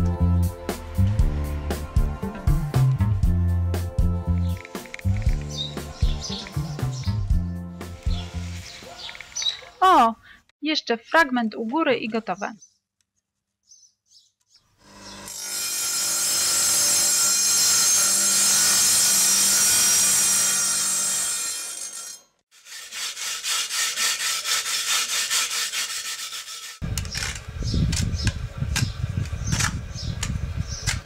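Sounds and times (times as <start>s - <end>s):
electric tile saw cutting: 14.8s - 27.4s
trowel scraping adhesive: 21.9s - 26.8s.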